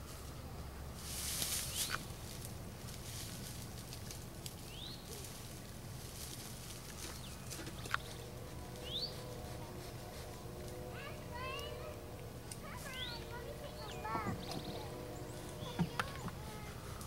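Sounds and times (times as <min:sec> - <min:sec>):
low hum: 0:00.0 - 0:17.0
rustling scrape: 0:01.0 - 0:12.0
bird chirping: 0:01.6 - 0:02.2, 0:04.6 - 0:05.2, 0:06.9 - 0:10.8, 0:11.4 - 0:17.0.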